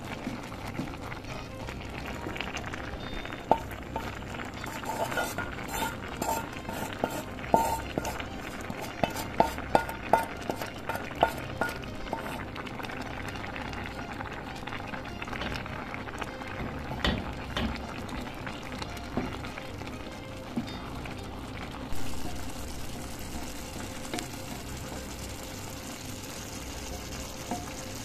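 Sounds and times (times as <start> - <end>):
rice simmering in a pot: 0.0 - 28.0
wooden spatula stirring rice: 3.5 - 12.5.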